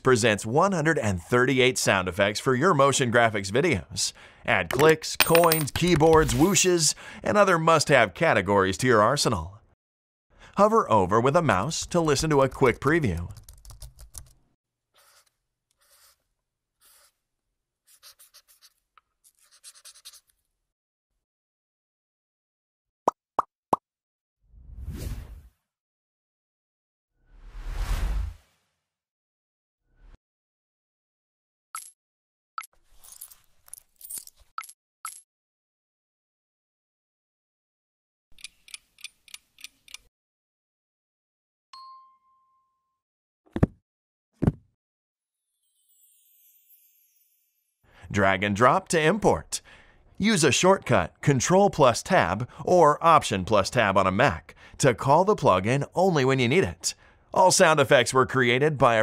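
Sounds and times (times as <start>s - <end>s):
marker pen scratching: 15.0s - 17.2s, 17.8s - 20.4s
bell ding: 41.8s - 43.0s
heavy book-drop thuds: 44.4s - 44.7s.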